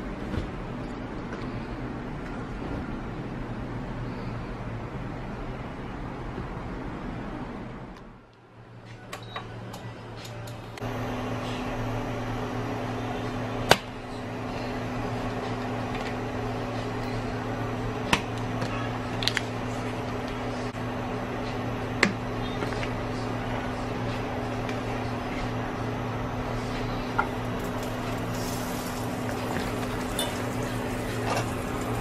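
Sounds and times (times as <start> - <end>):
kitchen appliance humming: 10.2 - 32.0.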